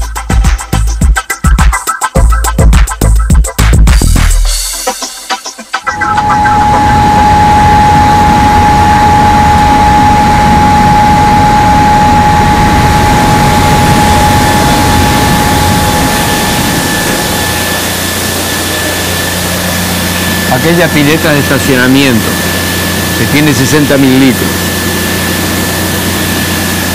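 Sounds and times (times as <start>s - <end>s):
machinery hum and rushing: 5.8s - 26.9s
machinery whine: 5.8s - 26.9s.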